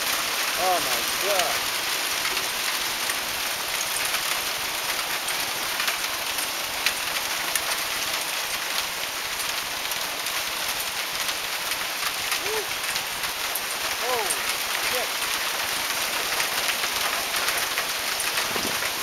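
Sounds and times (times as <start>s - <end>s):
heavy hail falling: 0.0s - 19.0s
hailstones clicking on deck: 10.8s - 19.0s.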